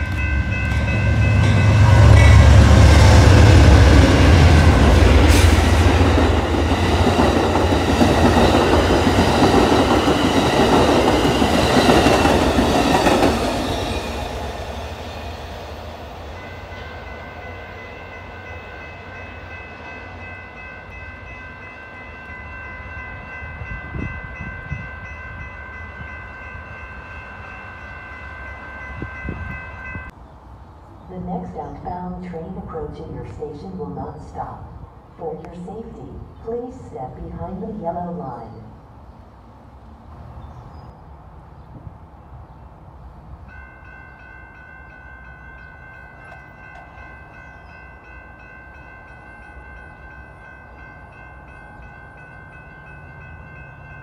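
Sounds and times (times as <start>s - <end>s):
diesel locomotive engine rumble: 0.0s - 21.4s
train cars clattering past: 0.0s - 30.2s, 43.4s - 54.0s.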